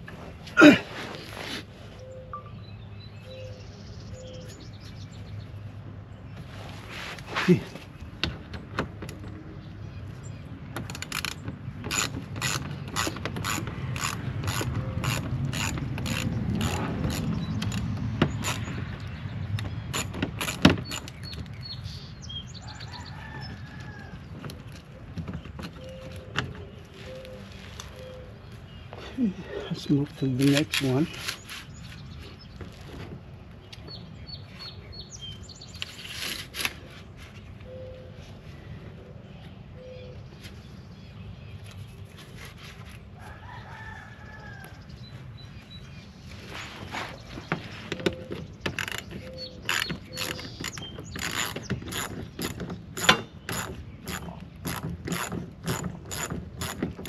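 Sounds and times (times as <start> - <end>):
birds chirping: 0.6 - 42.8, 43.5 - 57.0
rooster crowing: 43.2 - 44.9.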